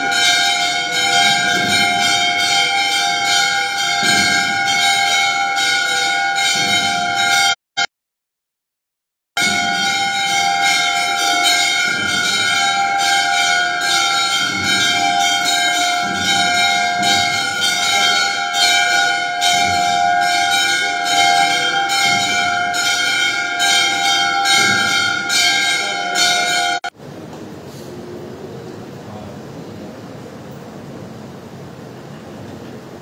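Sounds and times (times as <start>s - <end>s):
temple bells ringing: 0.0s - 7.6s, 9.4s - 27.0s.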